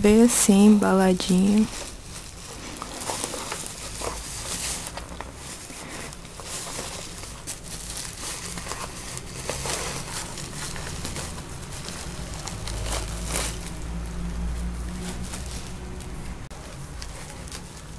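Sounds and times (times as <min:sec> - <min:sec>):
plastic and bubble wrap crinkling: 0:00.0 - 0:17.9
box sliding out of bag: 0:01.7 - 0:13.8.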